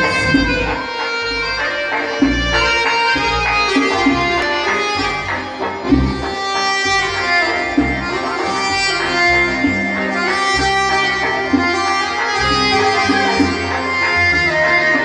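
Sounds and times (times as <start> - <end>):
frame drum beat: 0.0 - 1.0
accordion melody: 0.0 - 15.0.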